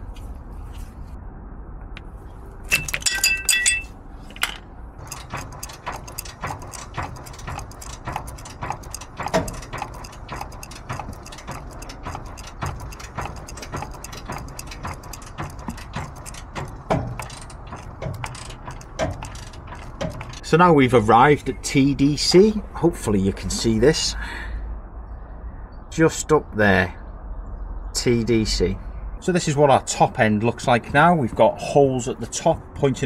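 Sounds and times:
ratchet clicking: 2.7 - 20.5
ringing metallic clatter: 2.7 - 22.4.

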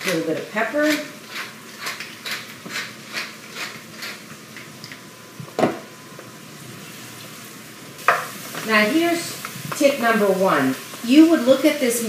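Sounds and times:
pepper mill grinding: 0.0 - 4.7
meat sizzling in a skillet: 6.8 - 12.0.

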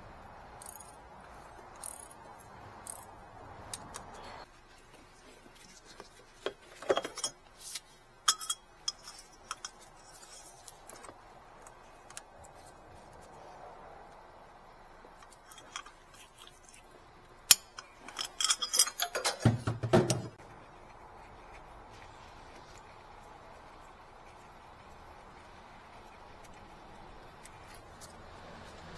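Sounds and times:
metal tools clinking: 6.7 - 7.4, 8.2 - 11.1, 15.2 - 16.8, 17.5 - 20.3.

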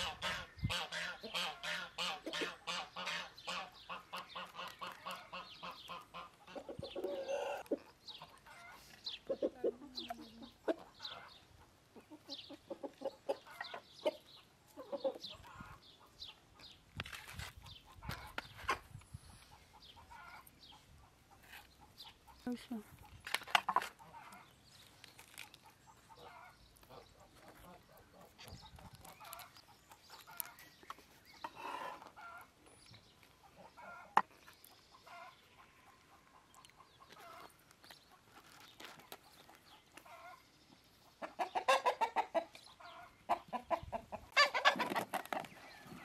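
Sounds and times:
chickens clucking: 0.0 - 46.0.

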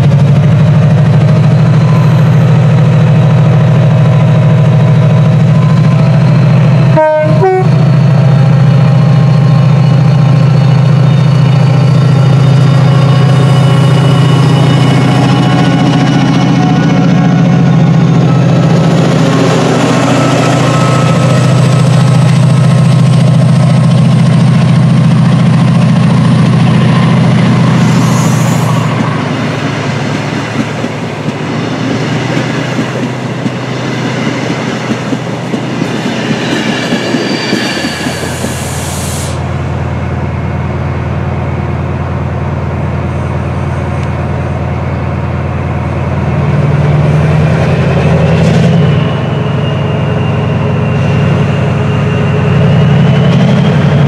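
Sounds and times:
diesel locomotive engine: 0.0 - 54.0
rising engine whine: 0.1 - 42.3.

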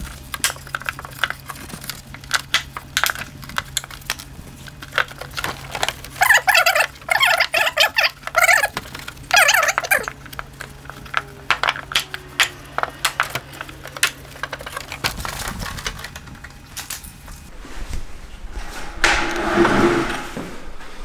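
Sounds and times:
steady low hum: 8.1 - 21.0.

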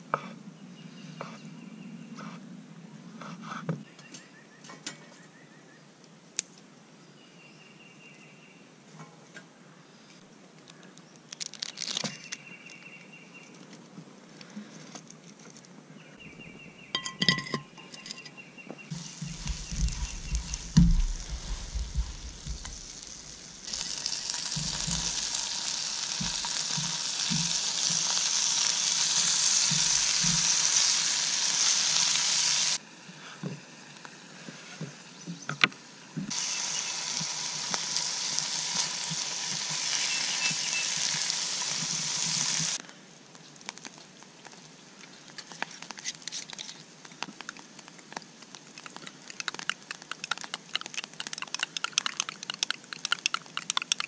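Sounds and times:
clicks and crackles: 10.6 - 12.8, 42.8 - 54.0
food sizzling in frying pan: 18.9 - 32.8, 36.3 - 42.8.

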